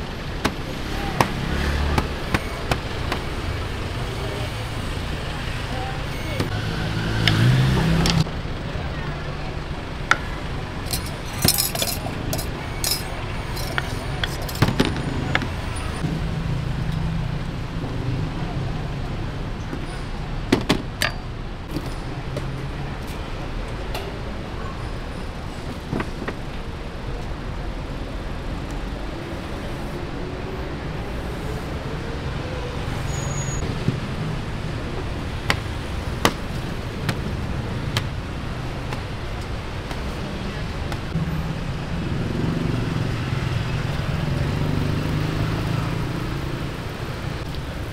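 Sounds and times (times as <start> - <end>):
street traffic rumble: 0.0 - 47.9
utensils clinking on metal cart: 10.8 - 15.0.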